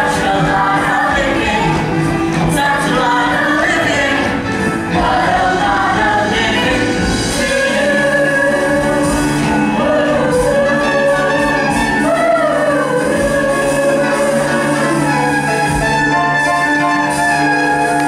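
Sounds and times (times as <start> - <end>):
instrumental accompaniment: 0.0 - 18.0
stage cast singing: 0.0 - 18.0.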